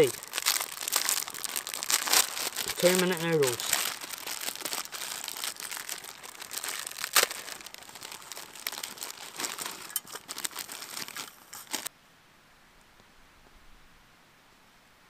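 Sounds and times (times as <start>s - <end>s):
dry noodles cracking: 0.0s - 11.9s
plastic packet crinkling: 0.0s - 11.9s.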